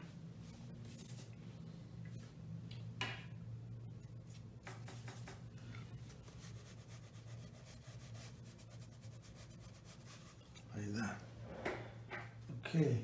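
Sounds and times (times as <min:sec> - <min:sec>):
steady low hum: 0:00.0 - 0:13.0
paint brush scratchy strokes: 0:00.4 - 0:01.4, 0:04.9 - 0:10.9.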